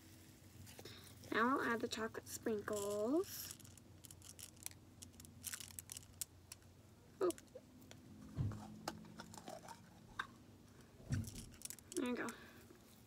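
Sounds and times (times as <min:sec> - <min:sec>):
hand-handling noises: 0:02.4 - 0:13.0
low thump: 0:08.3 - 0:08.6.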